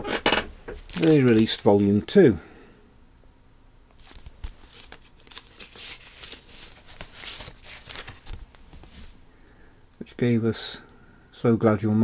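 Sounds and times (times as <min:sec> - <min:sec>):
card sleeve rustling and crinkling: 0:00.8 - 0:01.8, 0:03.9 - 0:09.2.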